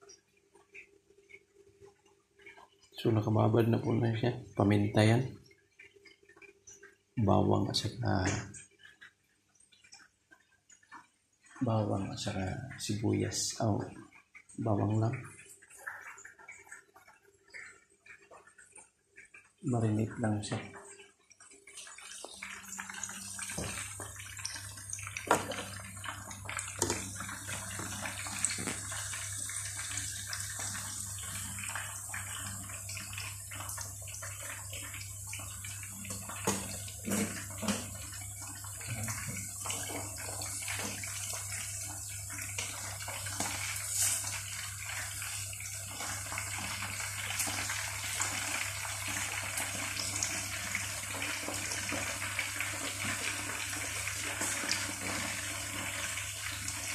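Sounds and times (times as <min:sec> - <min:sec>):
chicken deep-frying in oil: 0:00.0 - 0:56.9.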